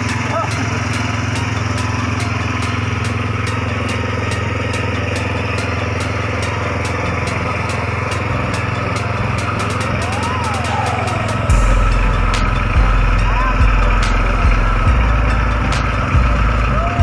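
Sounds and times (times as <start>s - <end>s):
engine running steadily: 0.0s - 17.0s
light regular ticking: 0.0s - 17.0s.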